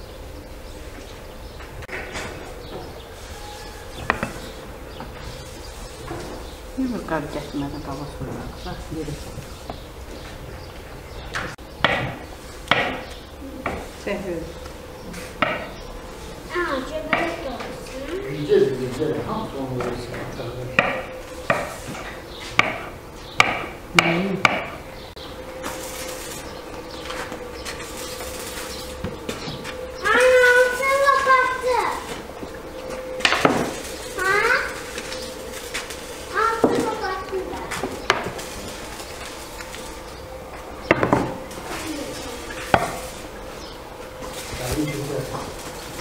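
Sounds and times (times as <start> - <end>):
knocks on a work table: 11.8 - 13.0, 22.6 - 24.8.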